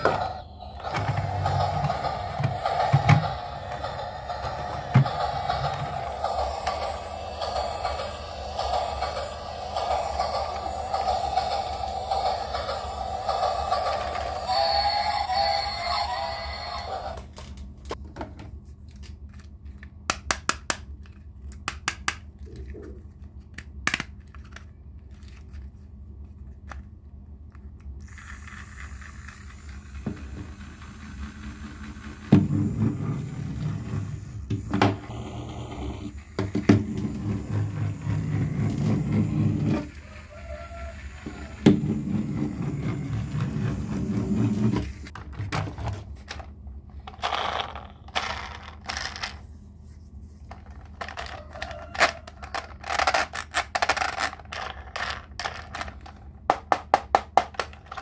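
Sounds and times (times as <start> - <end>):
toy train tune: 0.0 - 17.2, 37.1 - 41.7
plastic toy clicks and knocks: 50.5 - 58.0.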